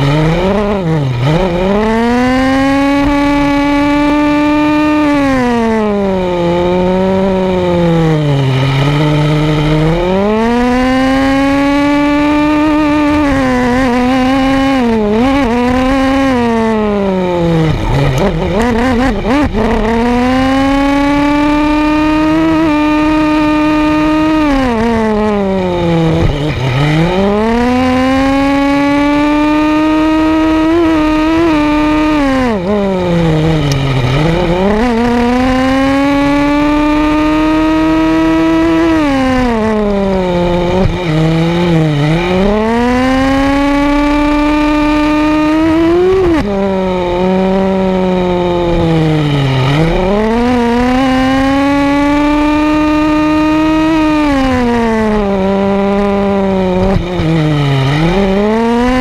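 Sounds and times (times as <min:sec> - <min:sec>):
small engine revving: 0:00.0 - 0:59.0.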